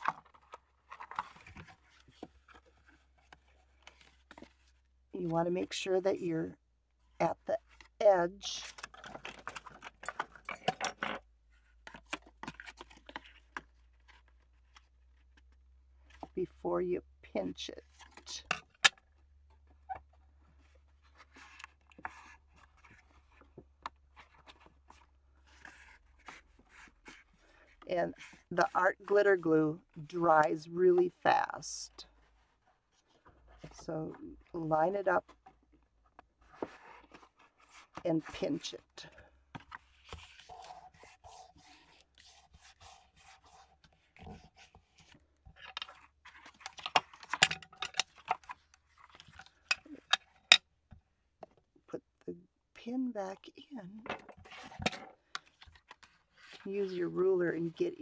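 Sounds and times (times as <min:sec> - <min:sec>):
card rustling and crinkling: 0:00.0 - 0:04.9, 0:08.6 - 0:16.4, 0:17.8 - 0:29.2, 0:35.2 - 0:50.6, 0:54.2 - 0:58.0.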